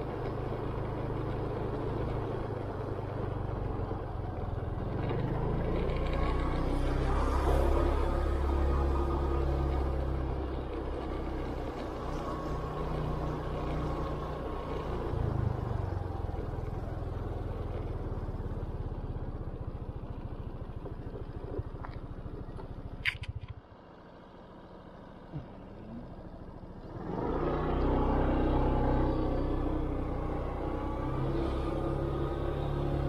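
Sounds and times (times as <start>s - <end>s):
motor scooter engine: 0.0s - 23.9s, 24.5s - 33.0s
sharp click: 23.0s - 23.6s.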